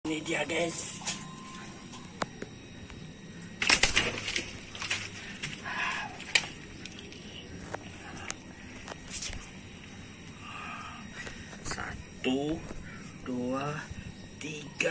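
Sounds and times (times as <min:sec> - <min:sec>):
fish slapping on concrete floor: 0:03.6 - 0:07.2.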